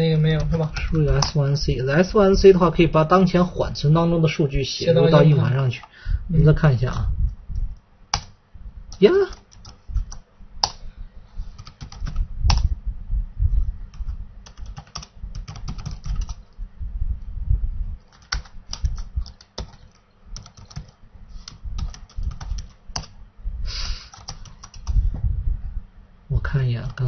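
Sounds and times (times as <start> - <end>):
computer keyboard typing: 0.1 - 1.6, 8.1 - 10.8, 11.5 - 12.7, 13.9 - 16.4, 18.0 - 23.2, 24.1 - 25.0.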